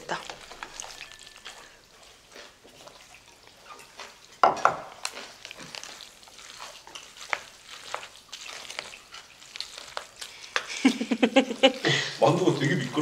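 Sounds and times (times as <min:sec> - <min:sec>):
chopsticks mixing sticky noodles: 0:00.0 - 0:13.0
person speaking: 0:11.6 - 0:13.0.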